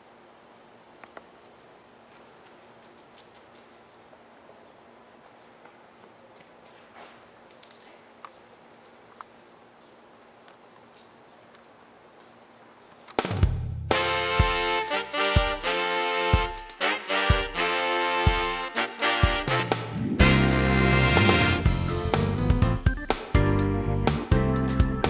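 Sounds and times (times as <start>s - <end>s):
insects droning: 0.0s - 19.6s.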